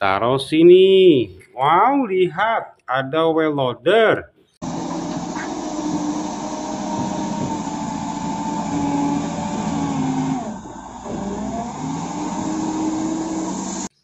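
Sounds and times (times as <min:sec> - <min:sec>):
loader diesel engine under load: 0:04.6 - 0:14.0.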